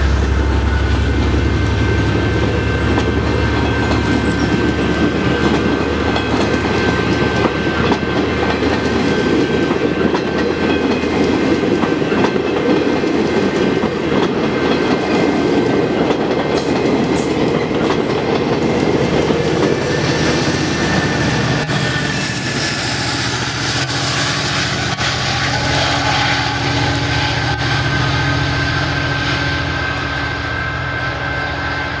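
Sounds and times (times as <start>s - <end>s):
diesel locomotive drone: 0.0s - 32.0s
train wheels on rails: 0.0s - 32.0s.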